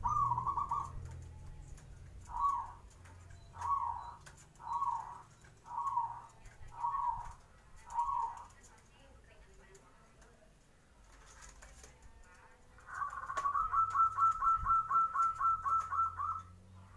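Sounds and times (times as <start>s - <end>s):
dove cooing: 0.0s - 8.7s, 12.2s - 16.6s.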